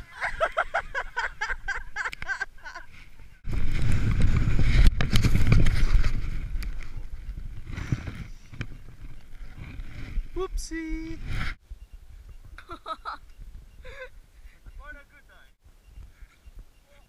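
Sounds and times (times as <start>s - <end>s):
wind buffeting microphone: 3.2s - 15.0s.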